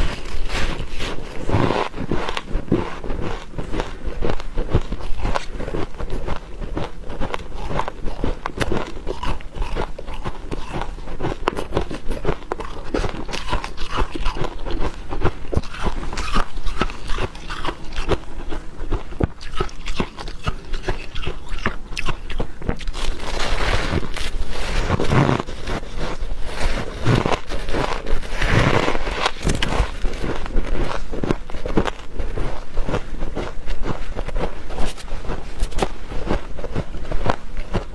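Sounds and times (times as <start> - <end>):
chewing crunchy frost: 0.0 - 37.9.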